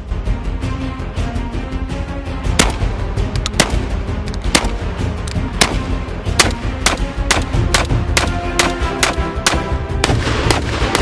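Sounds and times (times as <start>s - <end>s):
background music: 0.0s - 11.0s
shotgun shots: 2.6s - 2.9s, 3.5s - 4.8s, 5.5s - 11.0s.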